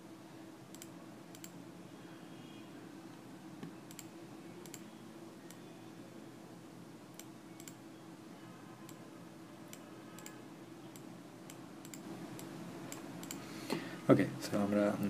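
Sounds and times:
faint steady hum: 0:00.0 - 0:15.0
computer mouse clicking: 0:00.7 - 0:01.6, 0:03.6 - 0:04.9, 0:07.2 - 0:07.8, 0:09.7 - 0:13.4.

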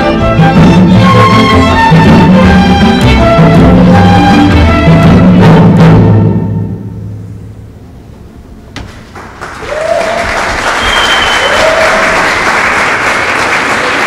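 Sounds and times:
orchestral music: 0:00.0 - 0:07.4
audience applause: 0:09.0 - 0:14.0.

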